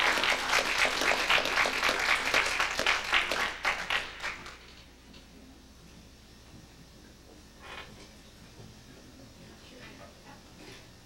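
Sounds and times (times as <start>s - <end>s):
audience clapping: 0.0s - 4.7s.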